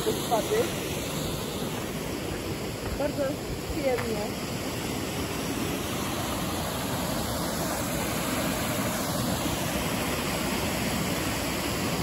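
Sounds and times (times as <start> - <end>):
river rushing over waterfalls: 0.0 - 12.0.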